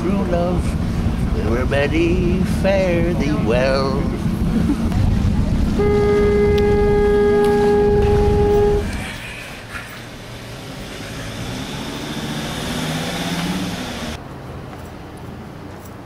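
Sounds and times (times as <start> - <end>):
heavy low rumble: 0.0 - 9.2
background noise: 0.0 - 16.0
horn held note: 5.7 - 9.0.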